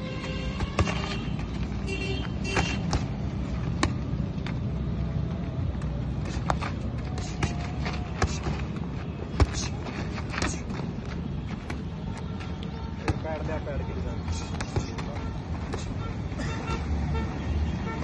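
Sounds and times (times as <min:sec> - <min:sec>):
boxing gloves smacking: 0:00.5 - 0:01.4.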